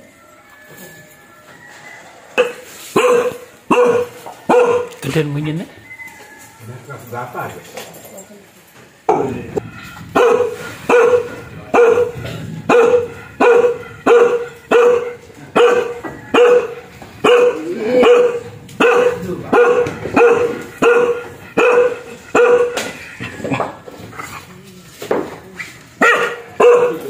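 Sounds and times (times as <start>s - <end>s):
dog barking fiercely: 2.4s - 5.0s, 10.1s - 23.0s, 26.0s - 27.0s.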